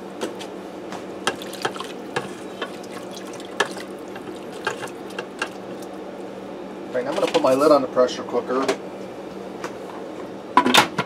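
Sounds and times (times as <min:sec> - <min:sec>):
liquid sloshing: 0:01.2 - 0:06.0.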